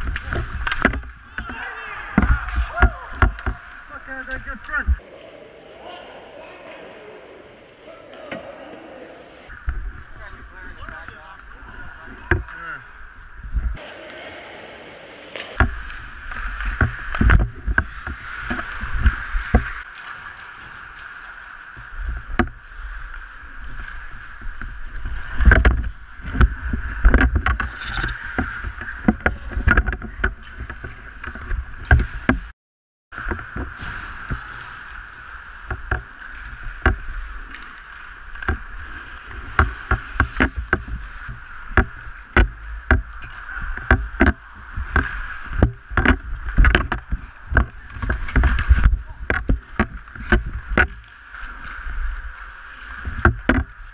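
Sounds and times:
clacks of sticks and puck: 0.0s - 5.2s, 35.6s - 51.9s
skate blades scraping ice: 33.7s - 42.4s.

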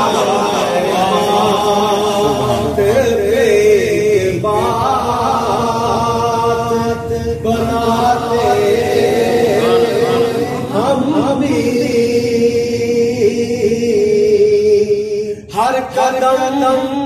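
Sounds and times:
men chanting without instruments: 0.0s - 17.0s.

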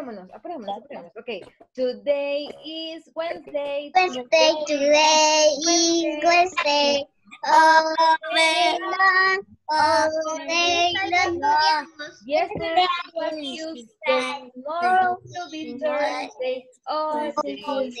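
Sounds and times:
woman singing along: 1.8s - 18.0s
young children singing: 2.6s - 18.0s.

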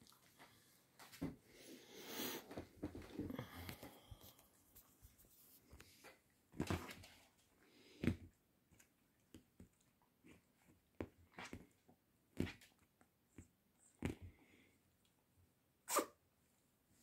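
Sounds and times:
faint clicks and taps: 2.5s - 14.4s.

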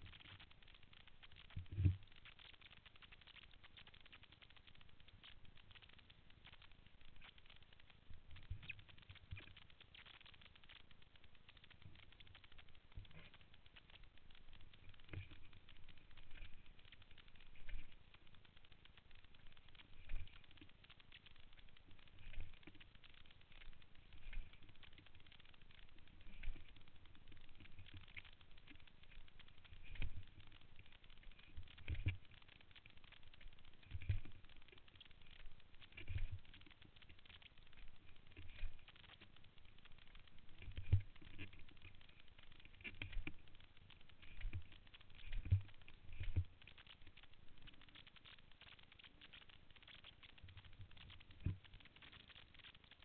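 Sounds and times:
fine crackling rattle: 0.0s - 53.0s.

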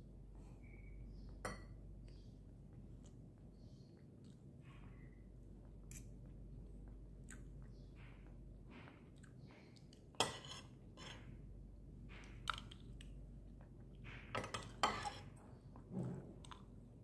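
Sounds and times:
cutlery scraping ceramic plate: 10.2s - 11.3s, 14.3s - 15.3s.

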